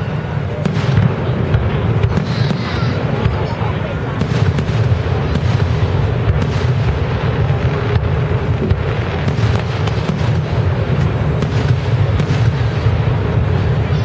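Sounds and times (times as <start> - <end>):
fireworks bursting: 0.0 - 14.0.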